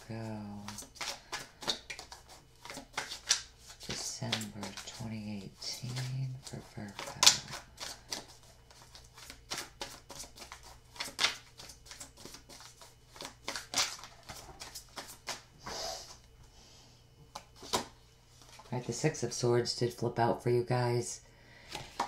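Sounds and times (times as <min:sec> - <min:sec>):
cards being shuffled: 0:00.0 - 0:15.4, 0:17.3 - 0:18.7, 0:21.7 - 0:22.0
faint steady hum: 0:00.0 - 0:22.0.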